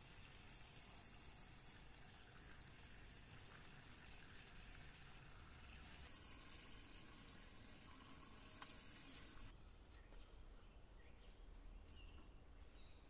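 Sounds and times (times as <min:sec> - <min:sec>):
hose water splashing into metal pot: 0:00.0 - 0:09.5.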